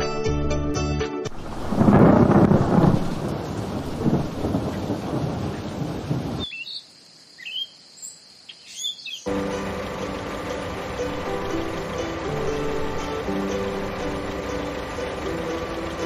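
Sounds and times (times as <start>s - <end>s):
thunder rumble: 1.3s - 6.5s
heavy rain: 1.3s - 6.6s, 9.3s - 16.0s
bird chirps: 6.4s - 9.3s.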